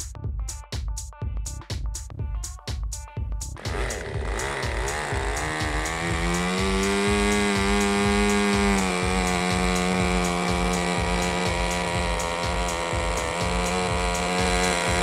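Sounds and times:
model glow engine whining: 3.6s - 15.0s.

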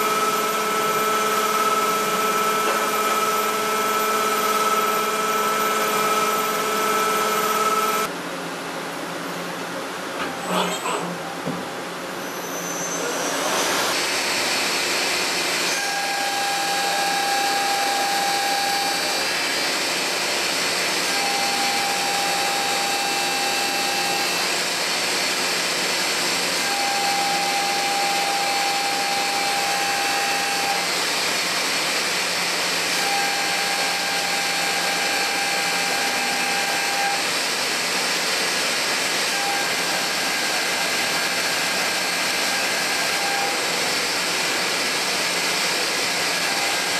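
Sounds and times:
pitched whine: 0.0s - 8.1s, 15.7s - 19.6s.

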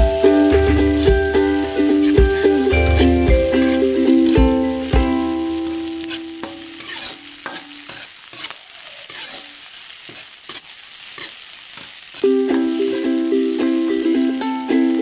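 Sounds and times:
chilies sizzling in hot oil: 0.0s - 15.0s
metal ladle scraping a wok: 1.6s - 5.0s, 5.6s - 12.2s.

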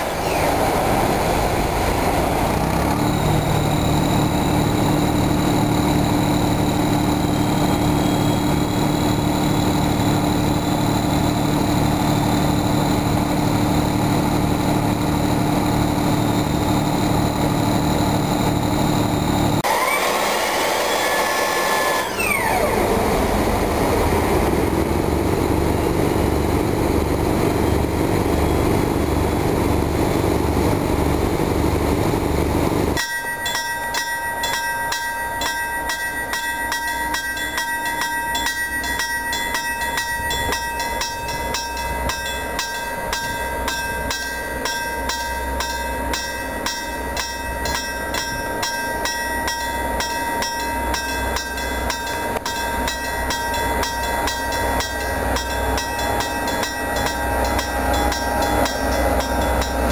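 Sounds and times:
diesel locomotive rumbling: 0.0s - 59.9s
two-tone crossing bell ringing: 33.0s - 59.9s.

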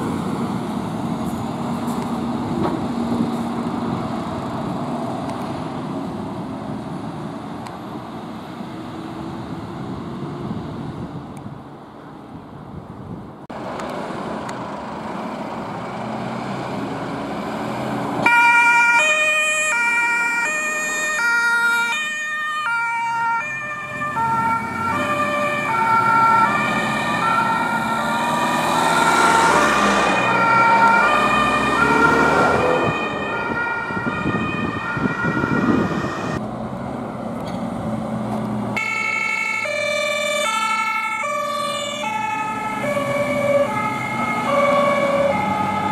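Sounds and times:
diesel truck engine: 0.0s - 12.4s, 13.3s - 45.9s
two-tone fire engine sirens: 17.2s - 36.4s, 38.7s - 45.9s.

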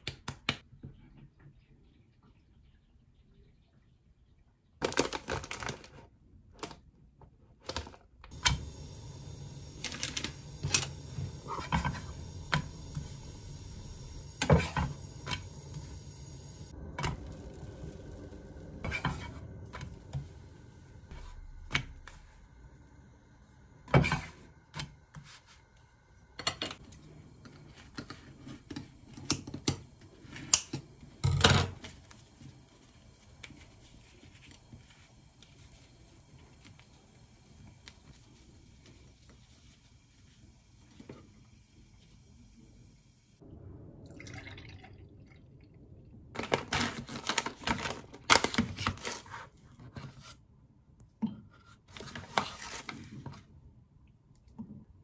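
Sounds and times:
steady hiss: 8.3s - 43.4s.

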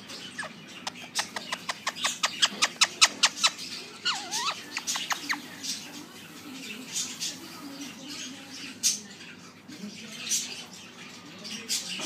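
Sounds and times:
parrot chirping: 0.0s - 9.0s.

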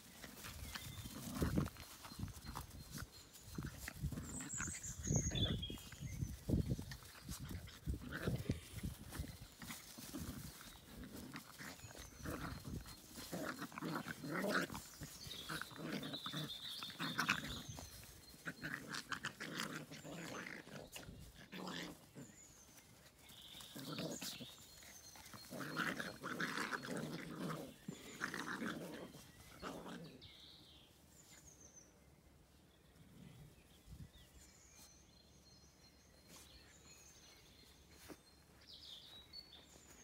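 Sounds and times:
dogs growling and yapping: 0.1s - 30.4s.

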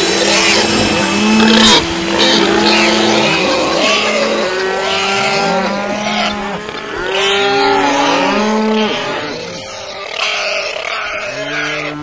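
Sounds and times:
cattle mooing: 0.0s - 12.0s.

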